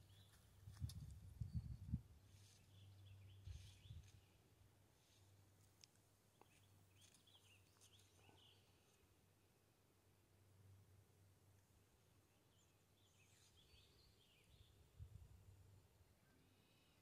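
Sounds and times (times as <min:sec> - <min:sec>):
faint bird chirps: 0:01.4 - 0:04.4.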